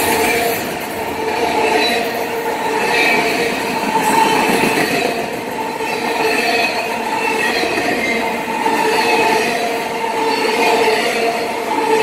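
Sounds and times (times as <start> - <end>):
train wheels rumbling on rail: 0.0 - 12.0.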